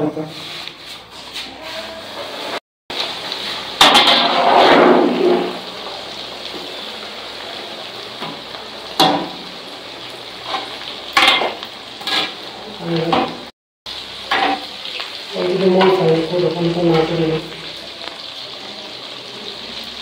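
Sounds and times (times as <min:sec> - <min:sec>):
food deep-frying in hot oil: 0:00.1 - 0:20.0.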